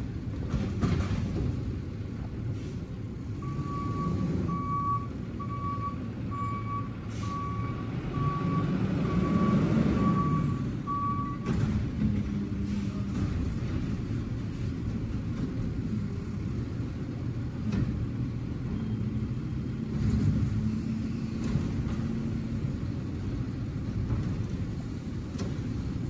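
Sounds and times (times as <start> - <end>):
truck backup alarm beeping: 3.4 - 11.6.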